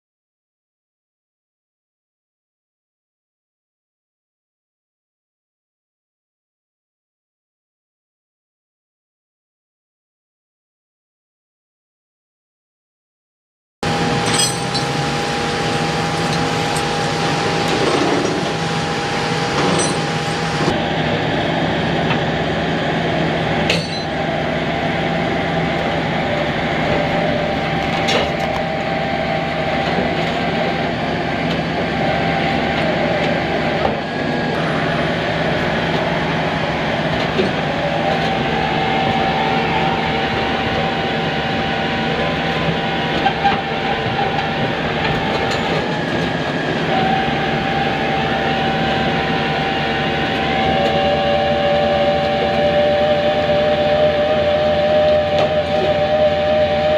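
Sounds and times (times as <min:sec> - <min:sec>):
mechanical drone with whine: 0:13.8 - 0:56.9
sharp clinks and knocks: 0:14.2 - 0:15.0.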